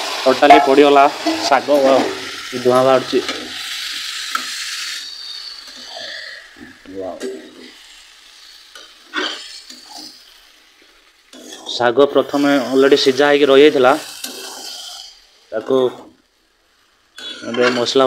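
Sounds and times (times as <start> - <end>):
greens sizzling in hot oil: 0.0 - 18.0
steel ladle scraping pan: 9.0 - 10.2.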